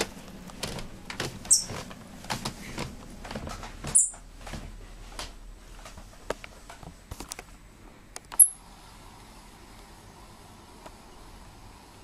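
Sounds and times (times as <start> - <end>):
squirrel chirping: 1.4 - 1.8, 3.9 - 4.2, 8.4 - 8.6.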